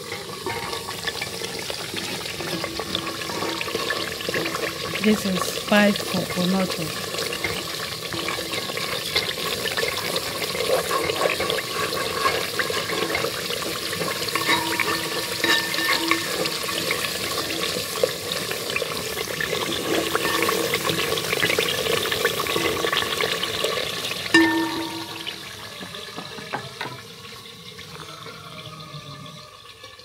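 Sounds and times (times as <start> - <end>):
frying crackling sizzle: 0.0 - 30.0
wooden spoon scraping pot: 7.2 - 17.0.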